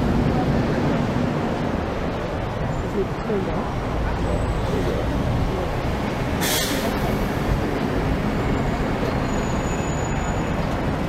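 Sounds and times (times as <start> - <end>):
bus engine rumble: 0.0 - 11.0
air brakes hiss: 6.4 - 7.3.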